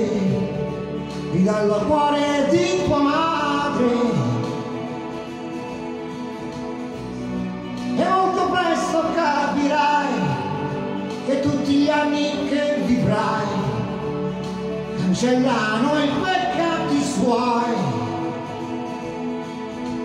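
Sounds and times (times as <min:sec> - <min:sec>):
man singing into microphone: 0:00.0 - 0:05.3, 0:07.9 - 0:14.2, 0:14.9 - 0:18.5
pop ballad backing track: 0:00.0 - 0:20.0.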